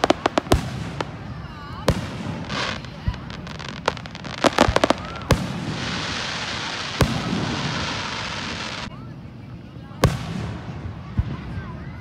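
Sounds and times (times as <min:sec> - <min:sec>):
fireworks bangs: 0:00.0 - 0:08.9
steady hiss: 0:00.0 - 0:08.9
fireworks crackling: 0:00.0 - 0:12.0.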